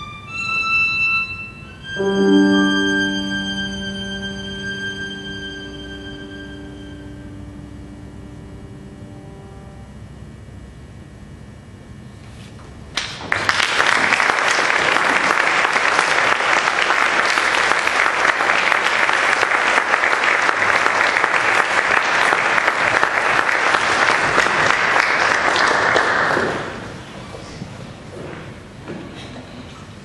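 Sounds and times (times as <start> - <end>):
audience applause: 13.0 - 27.0.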